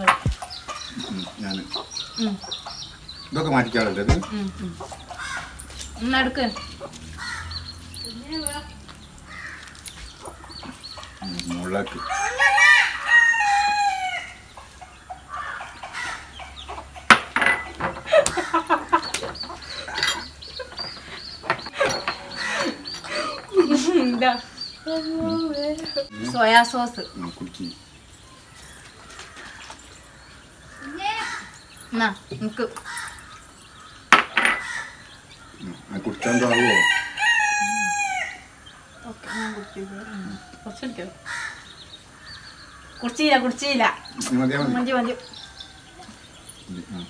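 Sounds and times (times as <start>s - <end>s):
hens clucking: 0.0s - 8.4s, 14.4s - 27.9s
rooster crowing: 11.9s - 14.4s, 36.1s - 41.6s.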